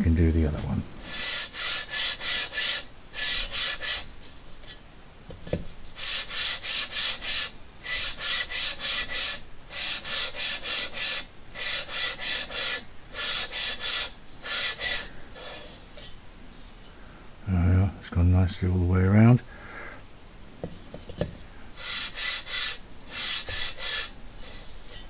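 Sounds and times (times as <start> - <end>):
metal-on-metal grinding rasp: 1.0 - 4.8, 5.8 - 16.2, 21.8 - 25.0.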